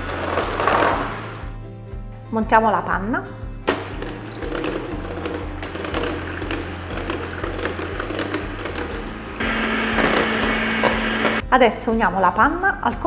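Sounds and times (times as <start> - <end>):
electric hand mixer whirring: 4.0 - 11.4.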